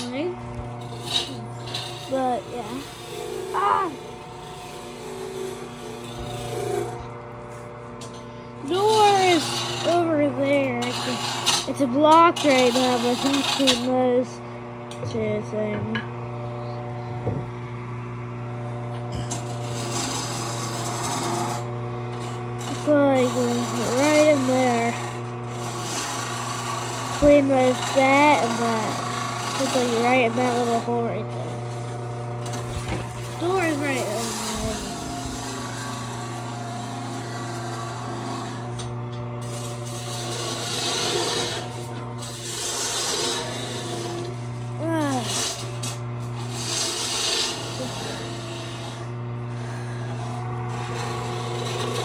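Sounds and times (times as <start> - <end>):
scraping against wood: 0.0 - 14.0, 18.9 - 52.0
wood lathe motor hum: 0.0 - 52.0.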